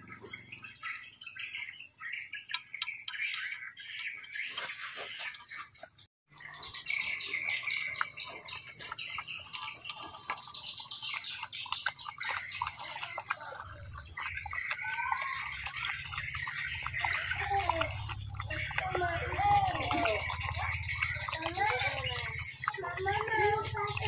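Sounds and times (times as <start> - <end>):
birds chirping: 0.0 - 24.0
dog lapping from metal bowl: 6.3 - 24.0.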